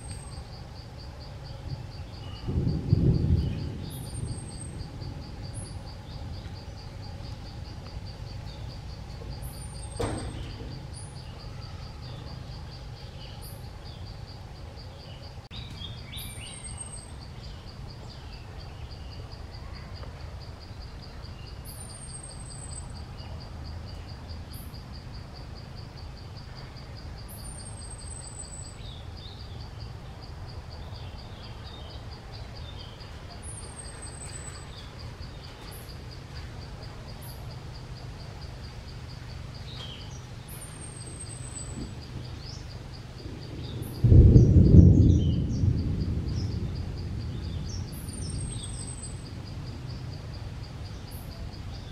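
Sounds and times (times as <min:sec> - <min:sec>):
low steady rumble: 0:00.0 - 0:11.6.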